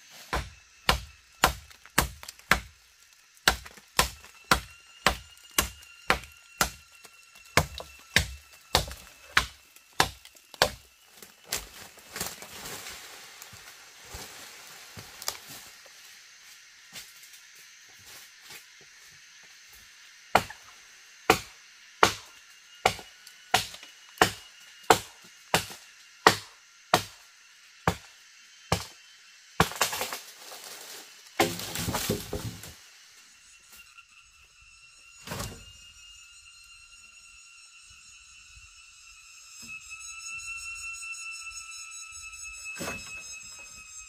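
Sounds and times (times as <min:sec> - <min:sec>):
axe chopping wood: 0:00.3 - 0:02.8, 0:03.4 - 0:06.8, 0:07.5 - 0:10.8, 0:21.3 - 0:27.2, 0:31.4 - 0:32.7
wood cracking and splintering: 0:01.4 - 0:06.8.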